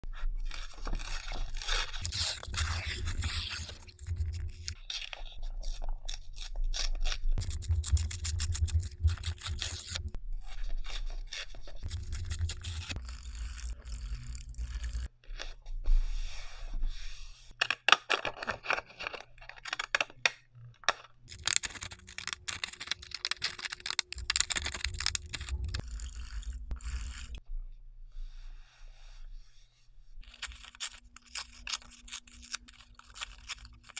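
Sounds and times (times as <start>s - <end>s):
paper rustling and rubbing: 0.4s - 15.5s, 21.3s - 27.4s.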